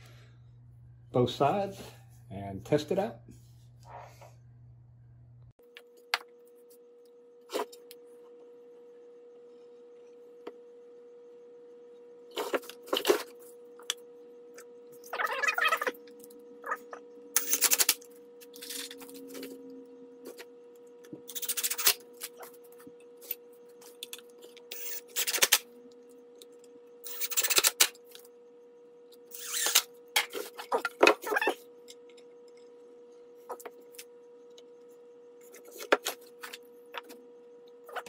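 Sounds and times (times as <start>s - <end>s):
faint steady hum: 0.0s - 38.0s
cordless drill running: 24.7s - 25.4s.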